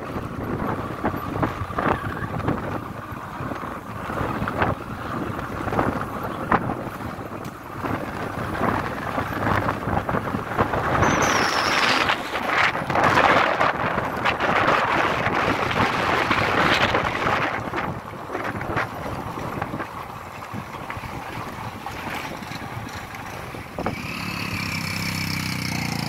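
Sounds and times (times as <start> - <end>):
vehicle running noise: 0.0 - 26.0
wind buffeting microphone: 0.0 - 26.0
brief high tone: 11.0 - 12.2.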